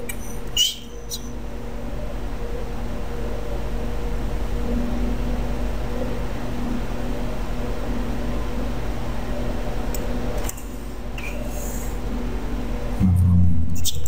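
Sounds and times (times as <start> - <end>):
microphone hum and hiss: 12.8 - 14.0.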